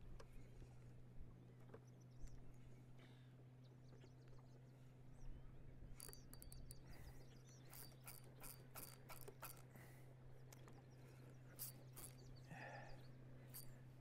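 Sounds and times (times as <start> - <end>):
faint low hum: 0.0 - 14.0
faint high clicks and chirps: 6.0 - 9.7, 10.4 - 12.6.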